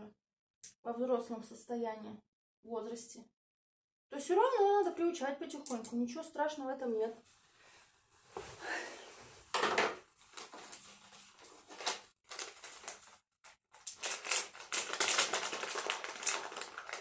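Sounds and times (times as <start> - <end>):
crackling rustle: 10.2 - 17.0.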